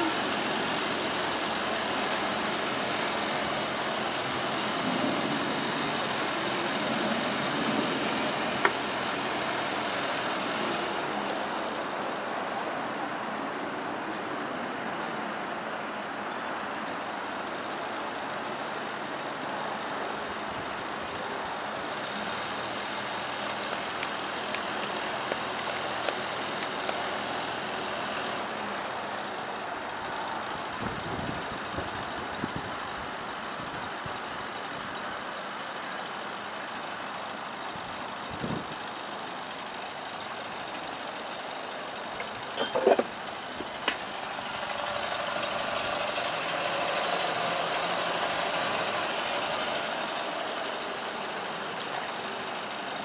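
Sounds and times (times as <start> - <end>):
boat engine running: 0.0 - 12.0, 20.4 - 53.0
small birds chirping: 23.4 - 26.6, 32.9 - 36.6, 37.6 - 39.1.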